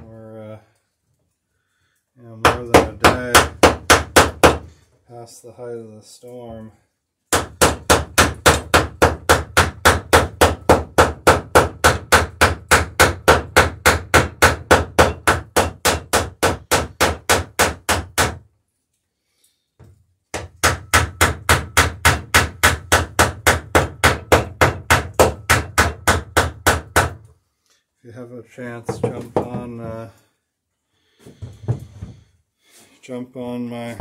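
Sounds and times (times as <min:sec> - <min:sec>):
rapid hammer blows on wood: 0:07.3 - 0:18.4, 0:20.3 - 0:27.2.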